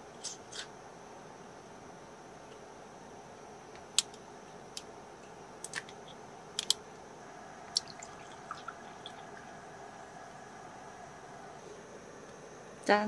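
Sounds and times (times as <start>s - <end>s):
low hum: 5.0s - 13.0s
liquid dripping: 7.4s - 10.6s.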